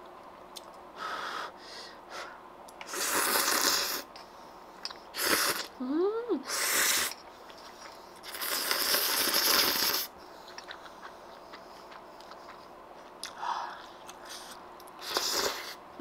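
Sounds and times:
person slurping noodles: 2.8s - 4.1s, 5.2s - 5.8s, 6.5s - 7.2s, 8.2s - 10.1s, 14.4s - 15.8s
chewing with wet clicks: 10.4s - 15.0s.

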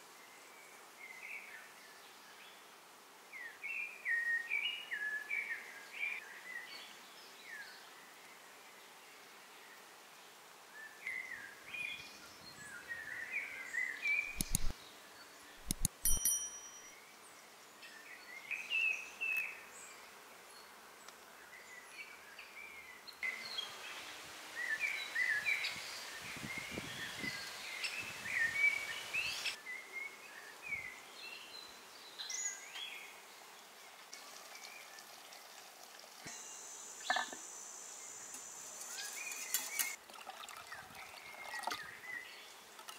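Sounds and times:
birds chirping: 13.8s - 14.7s, 36.3s - 40.0s
sharp clicks: 14.4s - 14.7s, 15.6s - 16.4s.

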